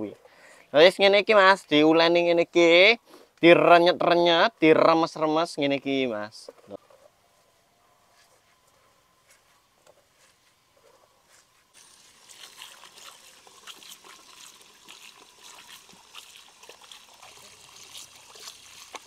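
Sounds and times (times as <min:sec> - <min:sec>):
hose water running into basket: 0:11.7 - 0:19.0.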